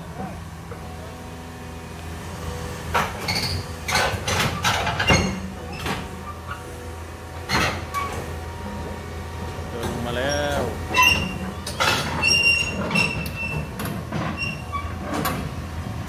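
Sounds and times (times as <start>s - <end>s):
diesel engine running: 0.0s - 16.0s
metallic clanks of steel tracks: 2.9s - 6.6s, 9.4s - 15.6s.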